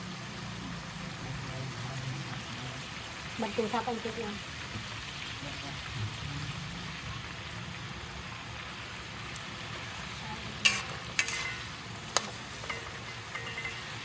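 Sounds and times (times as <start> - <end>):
food sizzling in a wok: 0.0 - 14.0
metal spatula scraping wok: 9.8 - 14.0.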